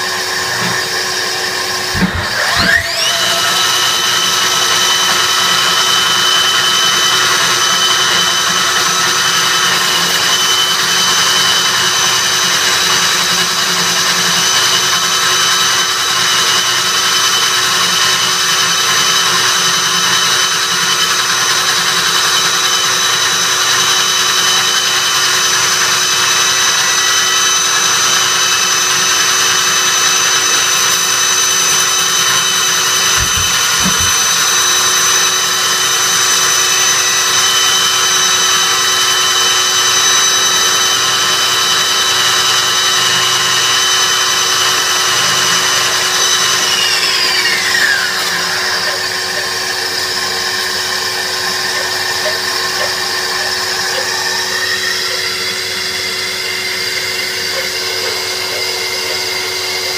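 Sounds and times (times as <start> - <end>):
core drill whining: 0.0 - 59.9
wet vacuum hissing: 32.9 - 35.1, 44.0 - 59.9.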